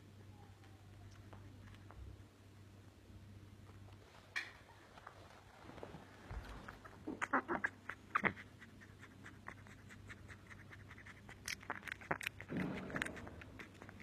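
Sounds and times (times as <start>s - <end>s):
shuffling: 3.6s - 7.1s.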